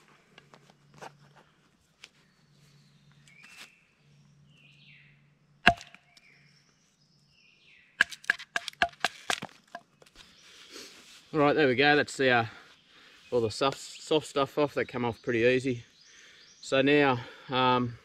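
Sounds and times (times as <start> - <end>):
blade chopping bark off log: 5.6 - 6.0, 8.0 - 9.6.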